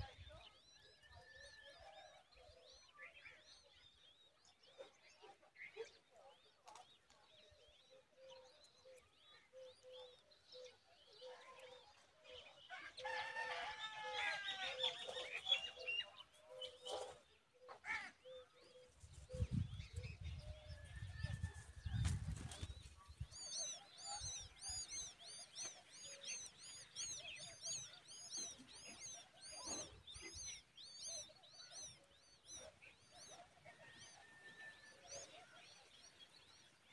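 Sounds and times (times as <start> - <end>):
small birds chirping: 0.0 - 36.9
nestlings squeaky begging calls: 23.2 - 34.2.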